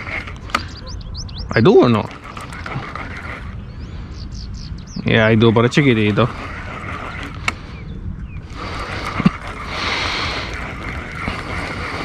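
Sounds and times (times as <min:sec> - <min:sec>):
wind rumbling on microphone: 0:00.0 - 0:12.0
water washing at shoreline: 0:08.4 - 0:12.0.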